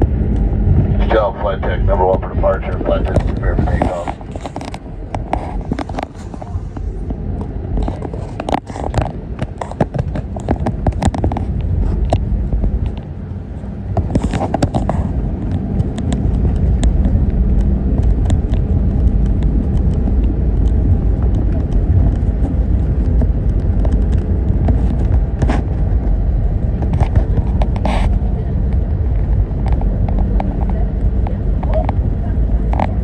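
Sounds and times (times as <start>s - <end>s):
aircraft engines rumbling: 0.0s - 33.0s.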